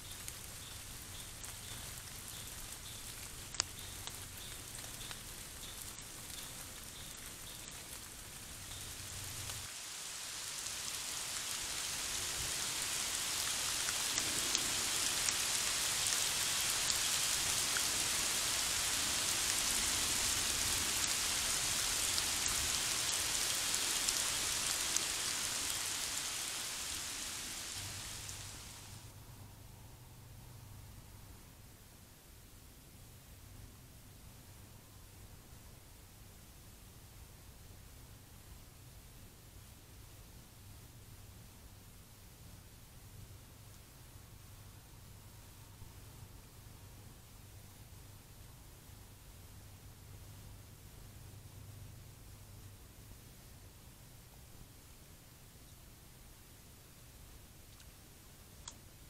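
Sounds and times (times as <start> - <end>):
rain on leaves and ground: 0.0 - 29.1, 53.8 - 59.0.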